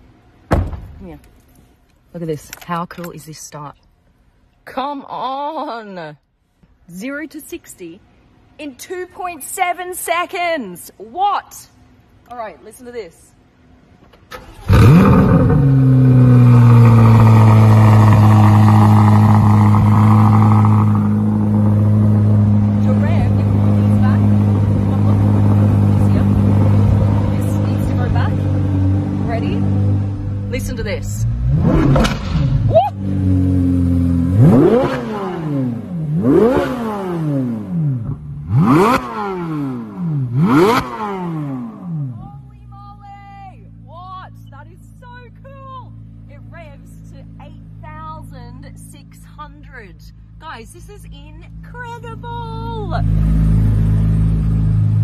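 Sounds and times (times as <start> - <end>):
car engine starting and idling: 13.7 - 55.0.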